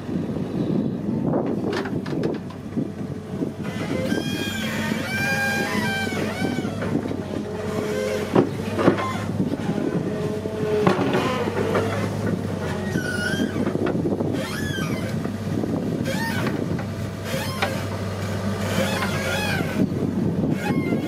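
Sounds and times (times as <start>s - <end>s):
excavator diesel engine running: 0.0s - 21.0s
short machine squeals: 3.7s - 7.0s, 7.6s - 9.4s, 12.7s - 13.7s, 14.3s - 15.2s, 16.0s - 16.6s, 17.2s - 17.9s, 18.7s - 19.9s, 20.5s - 21.0s.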